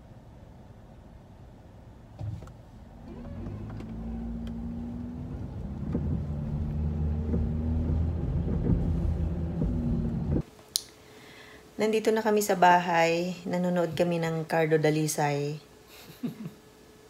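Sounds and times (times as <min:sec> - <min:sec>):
car engine and road drone: 0:02.1 - 0:10.4.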